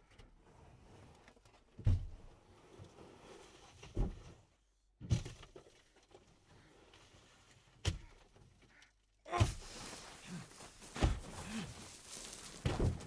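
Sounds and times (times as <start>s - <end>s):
muffled thuds: 10.9s - 11.4s, 12.6s - 13.0s.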